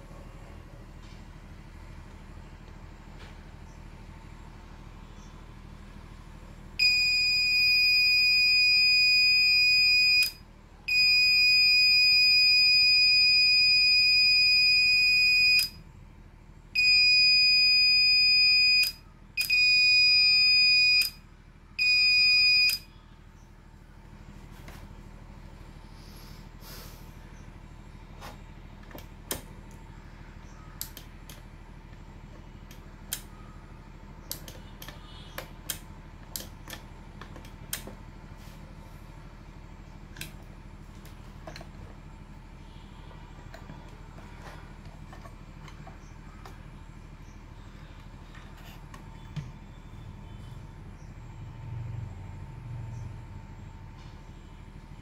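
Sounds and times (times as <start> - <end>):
high-pitched buzzer beep: 6.8 - 15.8, 16.8 - 21.2, 21.8 - 22.9.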